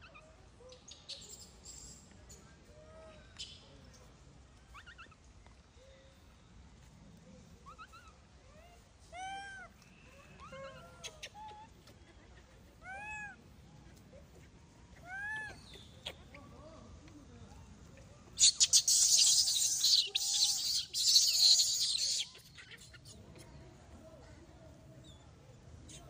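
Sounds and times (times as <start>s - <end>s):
monkey high cries: 7.7s - 11.8s, 12.8s - 13.5s, 14.4s - 16.2s, 18.4s - 23.1s
monkey screaming: 15.0s - 15.7s, 18.4s - 22.8s.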